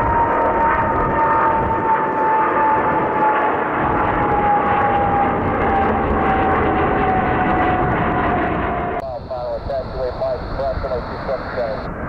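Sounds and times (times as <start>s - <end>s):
jet engines roaring with whine: 0.0s - 12.0s.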